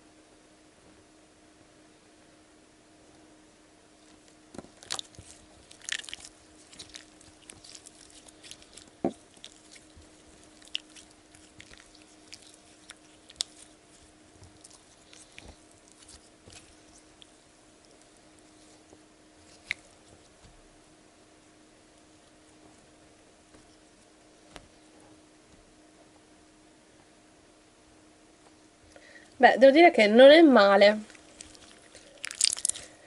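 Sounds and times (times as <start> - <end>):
slime squelching and crackling: 4.0 - 20.6, 30.9 - 33.0
slime snapping: 19.5 - 19.9, 31.4 - 32.8.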